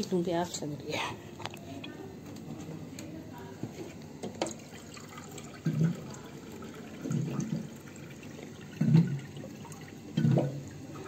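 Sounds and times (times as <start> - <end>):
water bottle glugging: 8.7 - 9.3, 10.1 - 10.6.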